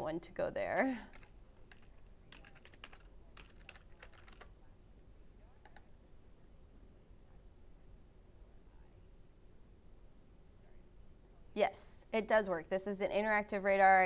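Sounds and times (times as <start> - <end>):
typing on computer keyboard: 0.8 - 4.6.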